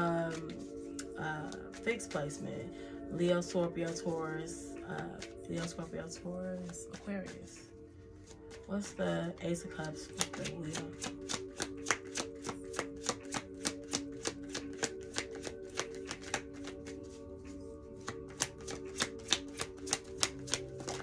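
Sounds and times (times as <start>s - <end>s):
soft background music: 0.0s - 21.0s
cards being shuffled: 0.3s - 1.8s, 6.5s - 7.4s, 9.7s - 21.0s.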